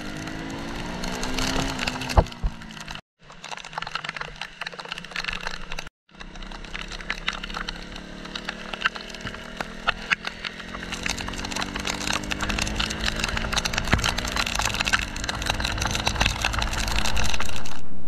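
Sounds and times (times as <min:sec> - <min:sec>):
motorcycle engine revving: 0:00.0 - 0:03.0, 0:05.8 - 0:17.9
rain drops crackling on microphone: 0:00.1 - 0:17.8.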